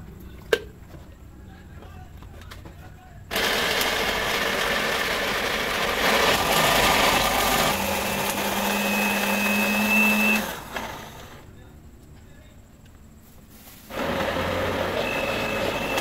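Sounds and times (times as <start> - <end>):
electric food grinder motor whining: 3.3 - 11.4, 13.9 - 16.0.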